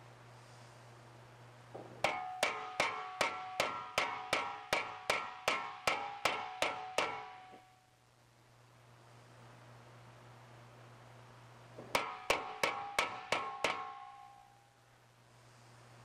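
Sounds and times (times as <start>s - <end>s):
hammer striking sheet metal: 1.8s - 7.8s, 11.8s - 14.5s.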